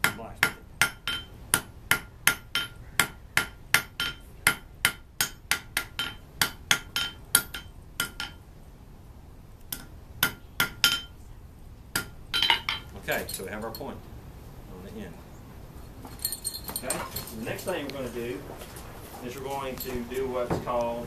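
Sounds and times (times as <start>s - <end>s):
hammer striking metal on anvil: 0.0s - 8.4s, 9.7s - 11.2s, 11.9s - 12.9s.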